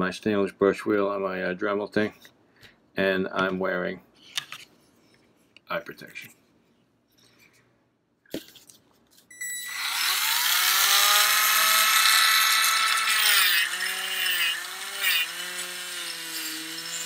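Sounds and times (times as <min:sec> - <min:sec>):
rotary tool wire brush whining: 0:09.5 - 0:17.0.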